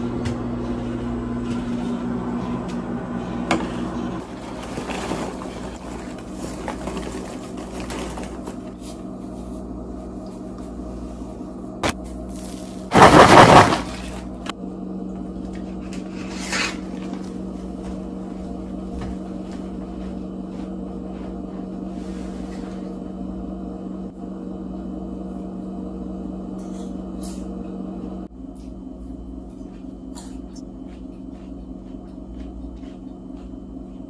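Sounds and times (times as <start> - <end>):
steady low hum: 0.0 - 34.0
paper bag crinkling: 4.2 - 8.9, 12.4 - 14.4.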